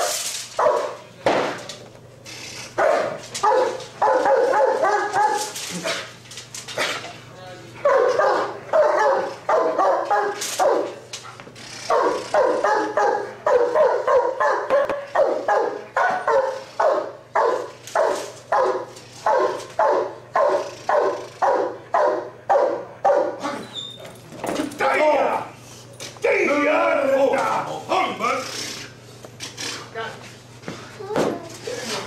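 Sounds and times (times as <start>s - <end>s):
dog barking: 0.0s - 1.0s, 2.8s - 6.1s, 7.8s - 11.0s, 11.9s - 23.6s.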